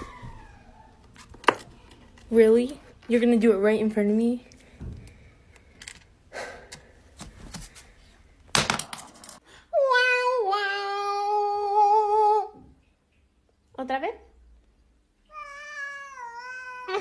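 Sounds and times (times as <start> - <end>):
cat meowing: 15.3 - 17.0.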